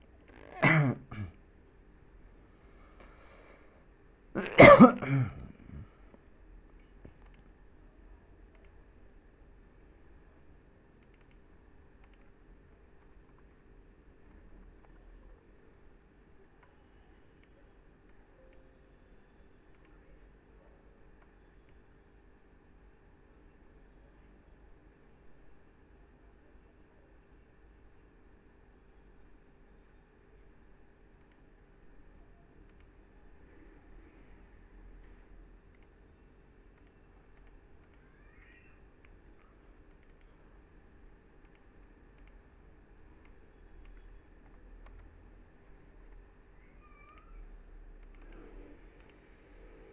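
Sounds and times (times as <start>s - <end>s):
faint steady hum: 0.0s - 49.9s
mouse and keyboard clicks: 7.1s - 7.5s, 11.0s - 11.4s, 12.0s - 12.4s, 36.8s - 40.3s, 41.4s - 42.4s, 43.2s - 45.1s, 46.9s - 47.4s, 48.0s - 49.2s.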